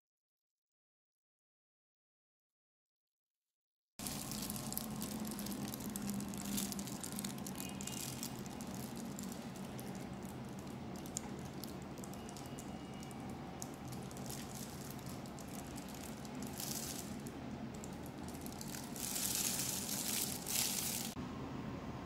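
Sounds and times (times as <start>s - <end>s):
squeeze bottle squishing: 4.0s - 21.2s
steady low hum: 4.0s - 22.0s.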